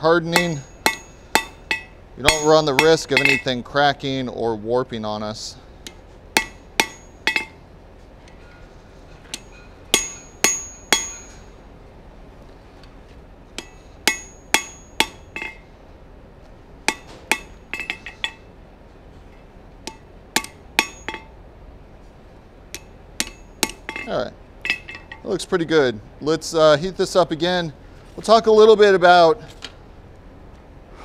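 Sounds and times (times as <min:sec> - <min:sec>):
hammer striking steel on anvil: 0:00.2 - 0:03.7, 0:05.8 - 0:07.6, 0:09.3 - 0:11.6, 0:13.6 - 0:15.7, 0:16.8 - 0:18.5, 0:19.8 - 0:21.4, 0:22.7 - 0:25.3.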